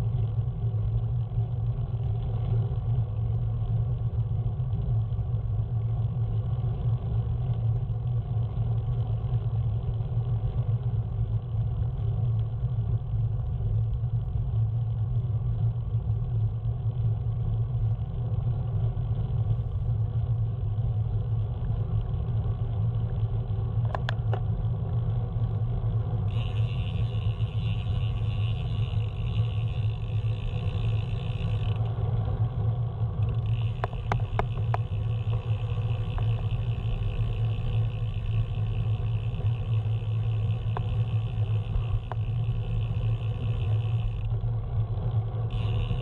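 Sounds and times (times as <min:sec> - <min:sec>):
vehicle rumble: 0:00.0 - 0:46.0.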